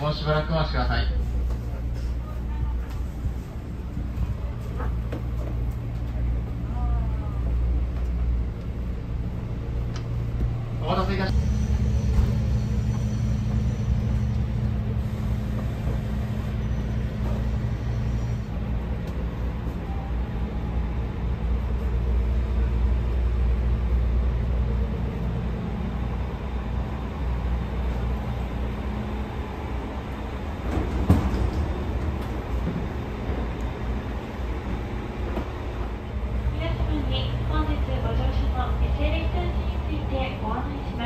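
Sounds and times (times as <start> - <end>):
train coach hum and rumble: 0.0 - 41.0.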